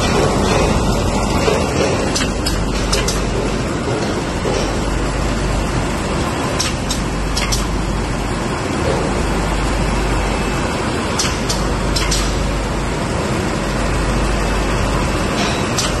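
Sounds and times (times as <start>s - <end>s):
machine clatter and hum: 0.0s - 16.0s.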